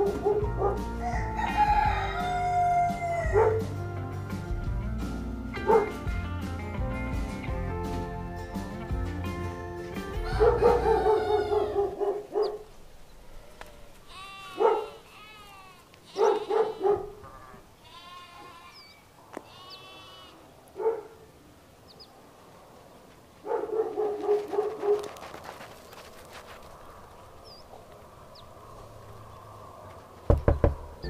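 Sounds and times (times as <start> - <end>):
sheep bleating: 13.5 - 20.5.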